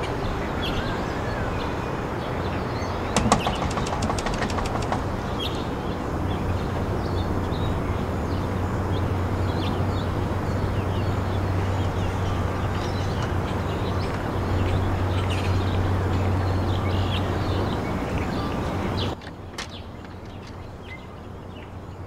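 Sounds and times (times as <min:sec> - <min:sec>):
constant rushing noise: 0:00.0 - 0:22.0
bird chirps: 0:02.7 - 0:06.4, 0:11.8 - 0:22.0.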